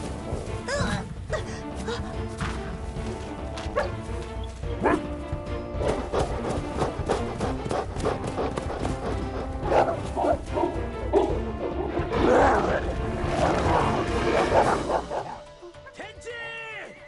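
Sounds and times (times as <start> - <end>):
film soundtrack music: 0.0 - 17.0
dogs barking: 3.7 - 4.1, 4.7 - 5.2, 5.8 - 15.5
dogs fighting: 5.8 - 15.5.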